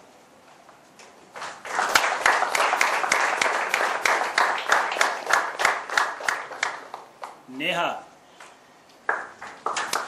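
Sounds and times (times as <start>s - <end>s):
audience applauding: 1.4s - 7.4s, 9.1s - 10.0s.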